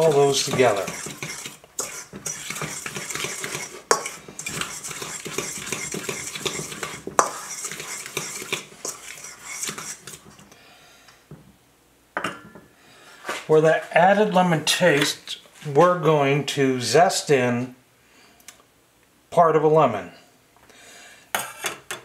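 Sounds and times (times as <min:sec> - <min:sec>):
utensil scraping metal bowl: 0:00.0 - 0:10.4.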